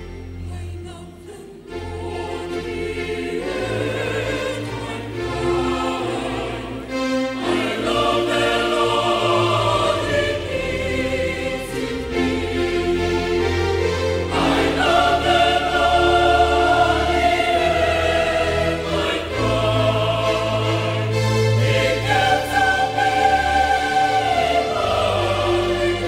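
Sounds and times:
mixed choir singing: 0.0 - 26.0.

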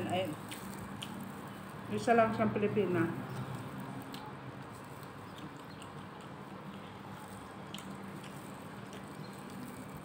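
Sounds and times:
chewing: 0.1 - 1.9, 3.2 - 10.0.

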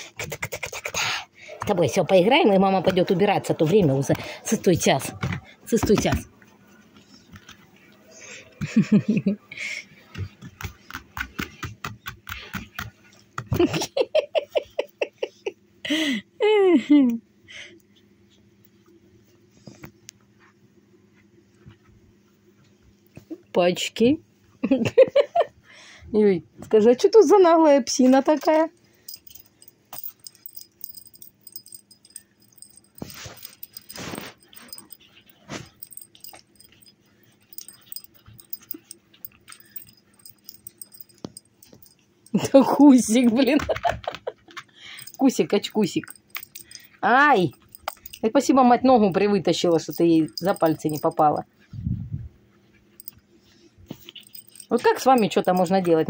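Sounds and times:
woman laughing: 8.6 - 9.8, 13.5 - 17.2, 24.6 - 25.6, 42.4 - 44.6.

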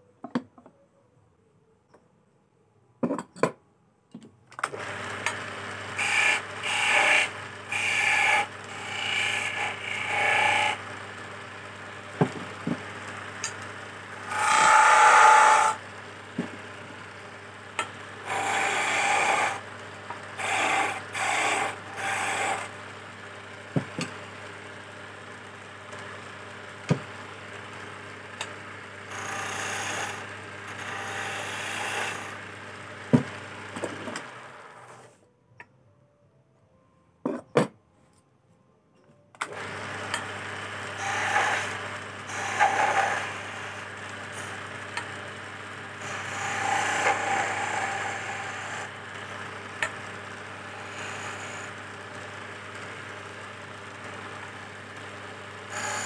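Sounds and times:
wood lathe humming: 4.8 - 35.0, 39.5 - 56.0
chisel scraping spinning wood: 6.0 - 10.9, 14.2 - 15.8, 17.8 - 22.8, 29.1 - 35.1, 39.6 - 45.2, 46.0 - 52.2, 55.7 - 56.0.

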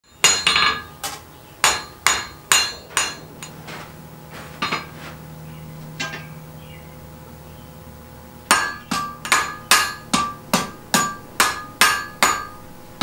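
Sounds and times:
hammer ringing on anvil: 0.0 - 1.0, 1.6 - 3.8, 4.6 - 5.0, 6.0 - 6.4, 8.5 - 12.8.

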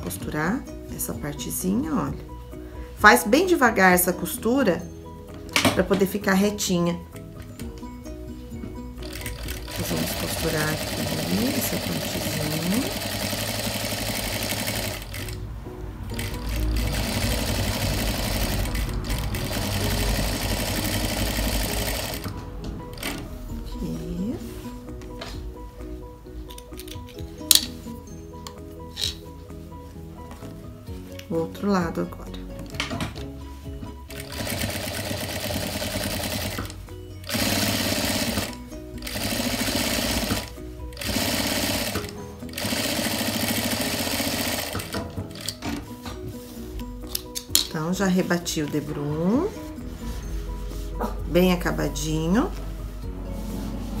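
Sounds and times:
background music: 0.0 - 54.0
sewing machine running: 9.0 - 15.4, 16.1 - 22.3, 34.1 - 45.6.

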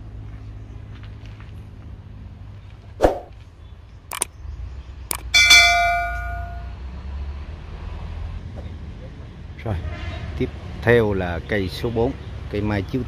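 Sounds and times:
sharp clicks: 4.1 - 4.3, 5.1 - 5.3
bright bell ding: 5.2 - 6.8.

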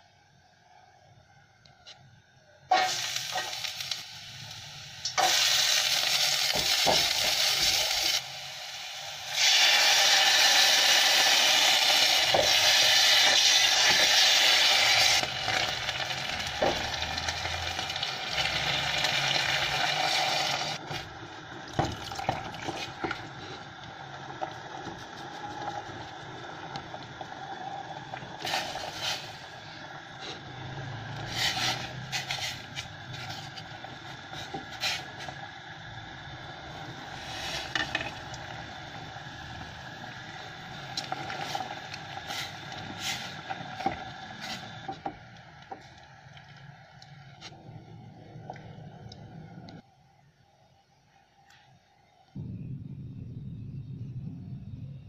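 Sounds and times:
garlic sizzling in hot oil: 2.7 - 45.9.

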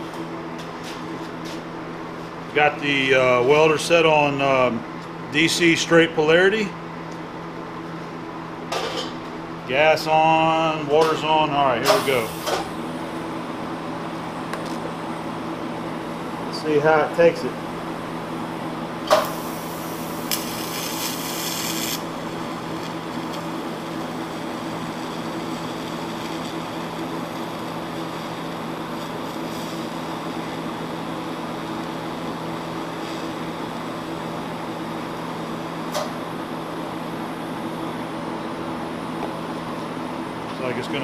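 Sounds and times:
welder and water cooler hum: 0.0 - 41.0
welding arc buzzing and hissing: 8.8 - 38.2.

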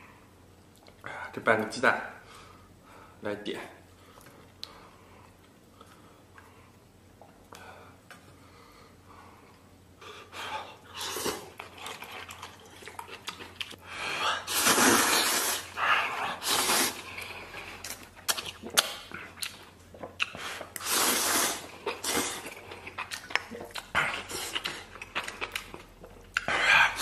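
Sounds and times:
person slurping noodles: 14.4 - 17.6, 20.4 - 22.9.

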